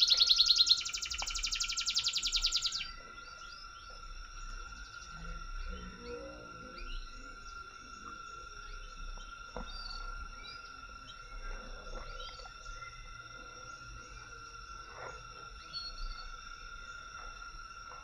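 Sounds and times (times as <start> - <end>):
bird chirps: 0.0 - 17.1
insects droning: 0.0 - 18.0.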